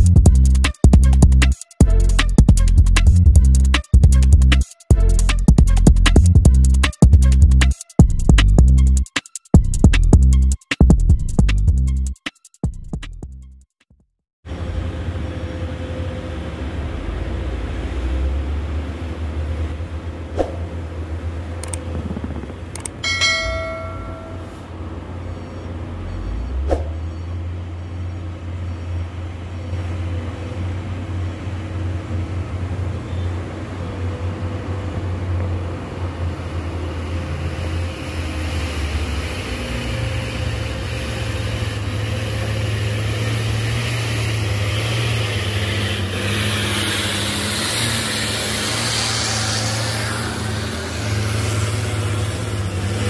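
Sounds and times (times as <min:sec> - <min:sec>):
diesel truck engine droning: 0:00.0 - 0:09.0, 0:14.5 - 0:53.0
clicks: 0:21.6 - 0:23.0
short bell-like chime: 0:23.0 - 0:25.6.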